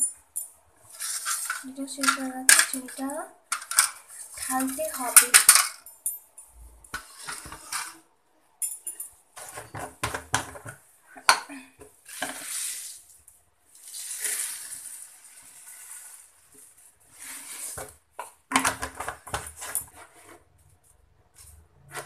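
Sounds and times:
sugar pouring into plastic jar: 13.7s - 16.6s.

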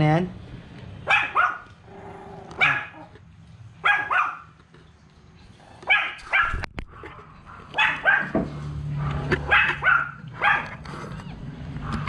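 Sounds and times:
small dog yapping: 1.1s - 1.7s, 2.6s - 3.1s, 3.8s - 4.5s, 5.9s - 8.4s, 9.4s - 10.8s.

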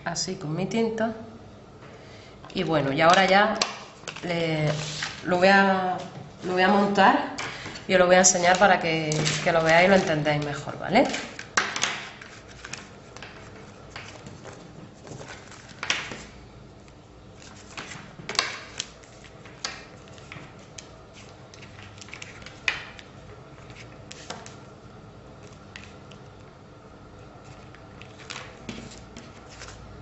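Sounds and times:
paper rustling and tapping: 7.4s - 16.4s, 17.4s - 24.6s, 27.4s - 29.8s.

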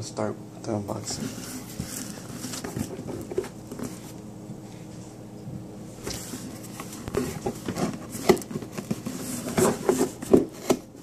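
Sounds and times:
knocks and scrapes on cardboard box: 6.1s - 10.8s.

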